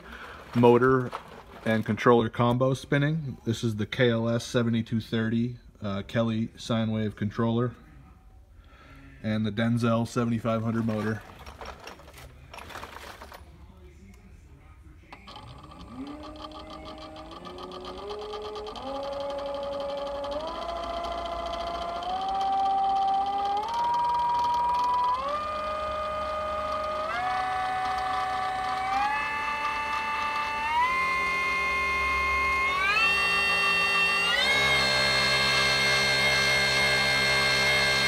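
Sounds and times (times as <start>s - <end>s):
electric motor whine: 15.1s - 38.0s.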